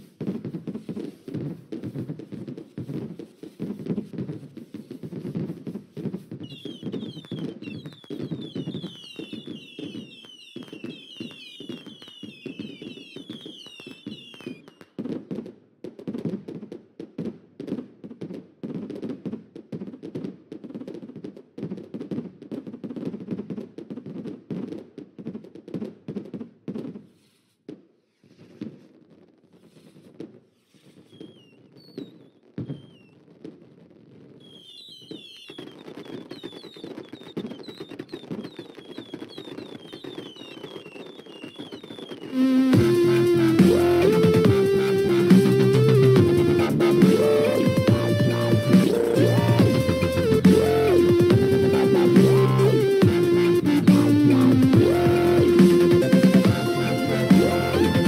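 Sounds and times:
fireworks popping and banging: 0:00.0 - 0:58.0
high whistling chirps: 0:06.4 - 0:14.8, 0:30.7 - 0:33.2, 0:34.4 - 0:58.0.

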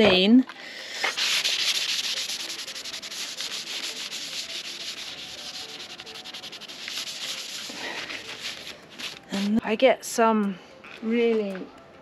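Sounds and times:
paper towel rubbing metal: 0:01.0 - 0:09.6.

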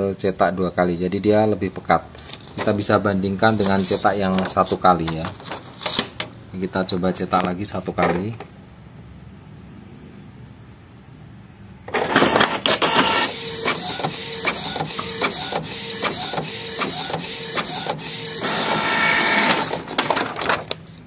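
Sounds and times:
print head carriage clicking: 0:11.9 - 0:20.8
printer mechanism clattering: 0:11.9 - 0:21.0
printer whirring: 0:11.9 - 0:21.0.

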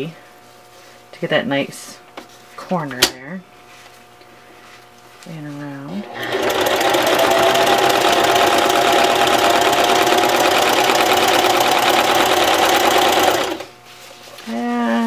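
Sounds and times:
sewing machine stitching: 0:06.1 - 0:13.7.

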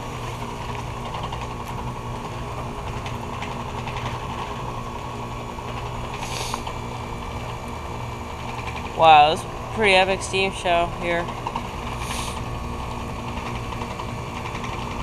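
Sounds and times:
heat pump unit humming: 0:00.0 - 0:15.0
short hiss: 0:06.2 - 0:06.7, 0:12.0 - 0:12.4.

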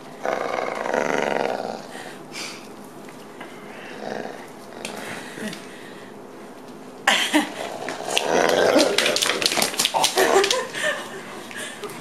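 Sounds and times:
dog growling: 0:00.2 - 0:01.9, 0:03.9 - 0:05.4, 0:07.5 - 0:10.5.

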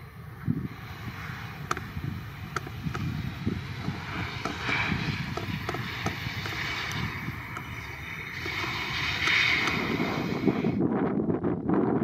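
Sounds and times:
jet engines hissing: 0:00.0 - 0:10.9
wind rumbling on microphone: 0:00.0 - 0:12.0
sharp clicks: 0:01.6 - 0:01.9.

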